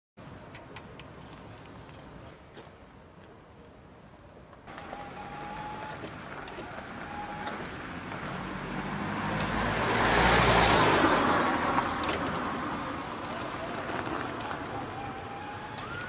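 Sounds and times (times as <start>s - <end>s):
road and tyre noise: 0.2s - 16.0s
small car passing: 4.7s - 16.0s.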